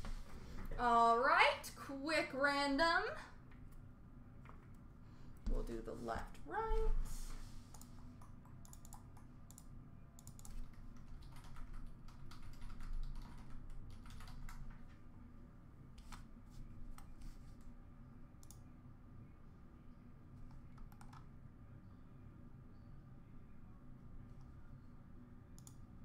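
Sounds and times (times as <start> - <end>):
low room hum: 0.0 - 26.0
computer keyboard typing: 7.7 - 14.8, 20.4 - 21.3, 25.6 - 25.8.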